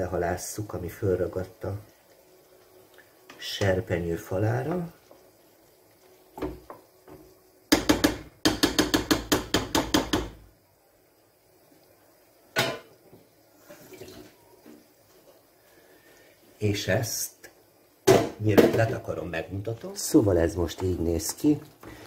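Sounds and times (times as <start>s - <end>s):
sauce simmering: 0.0s - 22.0s
spatula knocking on frying pan: 6.4s - 10.5s.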